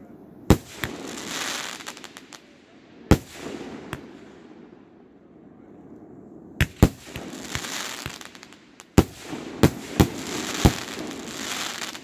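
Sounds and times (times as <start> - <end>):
firework stars crackling: 0.5 - 4.6, 6.6 - 12.0.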